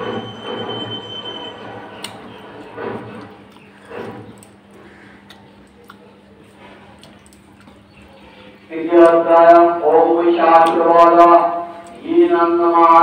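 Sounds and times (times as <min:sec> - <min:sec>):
chewing: 0:02.0 - 0:08.6.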